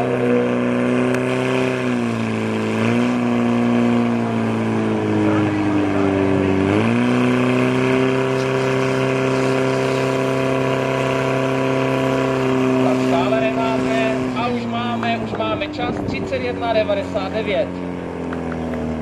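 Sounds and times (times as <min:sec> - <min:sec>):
fire pump engine running: 0:00.0 - 0:19.0
water spraying from nozzles: 0:00.0 - 0:19.0.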